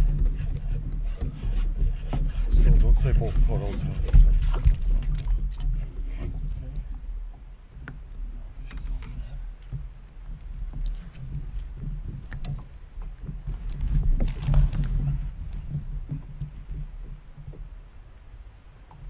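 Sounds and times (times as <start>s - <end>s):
water sloshing: 0.0s - 19.0s.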